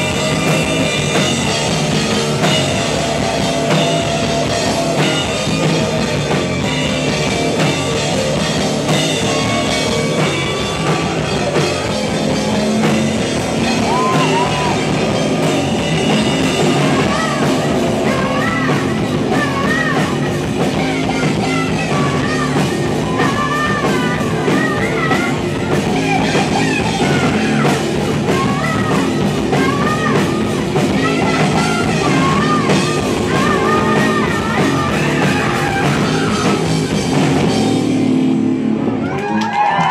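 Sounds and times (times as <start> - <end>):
drum kit: 0.0 - 39.9
electric bass: 0.0 - 39.9
electric guitar: 0.0 - 39.9
person singing: 8.8 - 37.8.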